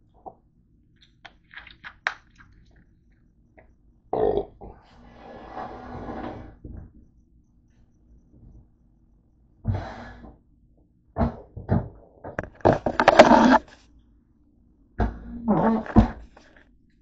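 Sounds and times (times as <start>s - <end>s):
loud burp: 4.1s - 4.8s.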